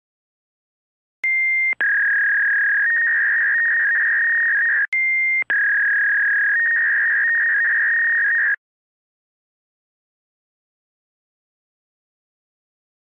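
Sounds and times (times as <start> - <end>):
dial-up modem tones: 1.2 - 8.6.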